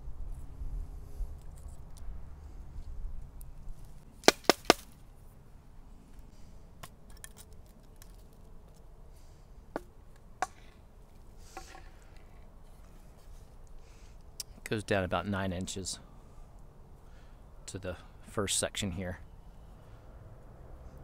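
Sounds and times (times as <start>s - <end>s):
sharp wooden knocks: 4.2s - 4.8s
soft rustle: 11.0s - 14.1s.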